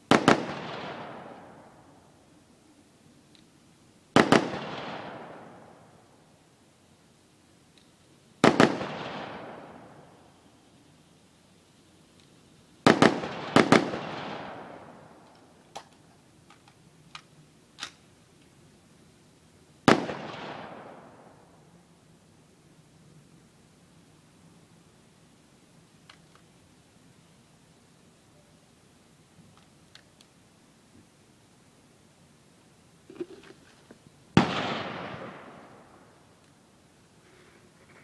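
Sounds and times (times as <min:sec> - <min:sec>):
rifle shots with echo: 0:00.1 - 0:01.9, 0:04.1 - 0:05.9, 0:08.4 - 0:10.2, 0:12.8 - 0:15.2, 0:19.9 - 0:21.5, 0:34.3 - 0:36.2.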